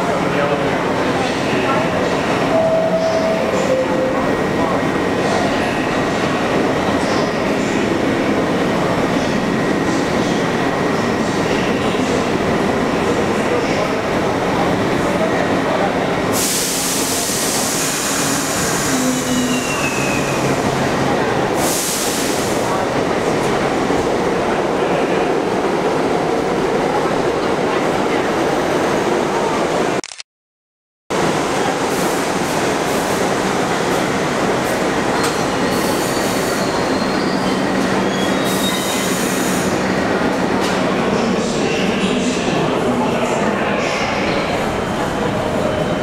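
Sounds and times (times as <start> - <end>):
subway train rumble and hiss: 0.0 - 30.0, 31.1 - 46.0
train wheels rumbling on rail: 31.2 - 46.0
high wheel squeal: 35.2 - 39.3.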